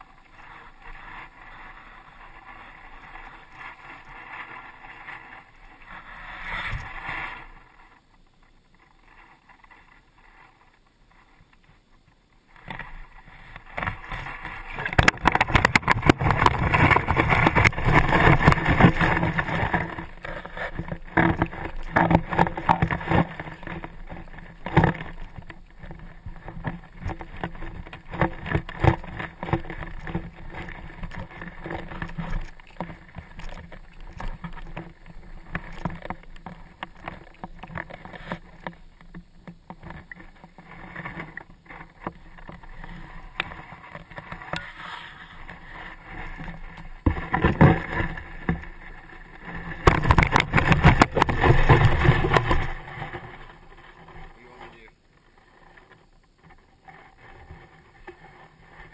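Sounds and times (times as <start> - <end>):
net knocking on rocks: 49.8 - 52.7.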